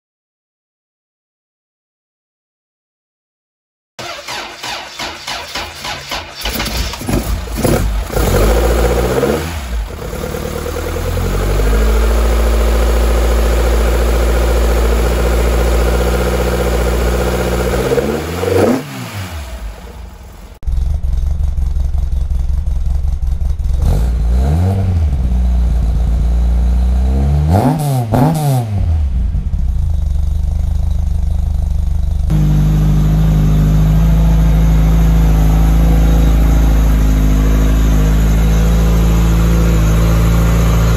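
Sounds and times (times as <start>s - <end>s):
car engine revving at fast idle: 5.5s - 40.9s
engine throttle blips: 27.5s - 40.9s.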